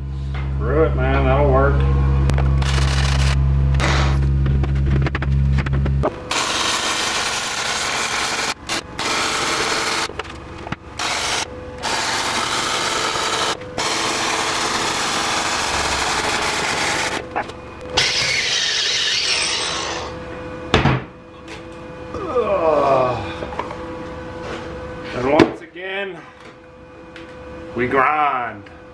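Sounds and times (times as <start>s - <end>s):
welding arc crackling: 2.3s - 20.1s.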